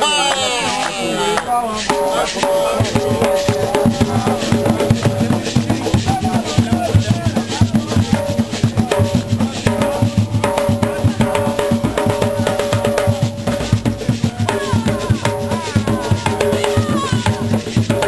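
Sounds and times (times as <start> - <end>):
hand drums playing fast rhythm: 0.0 - 18.0.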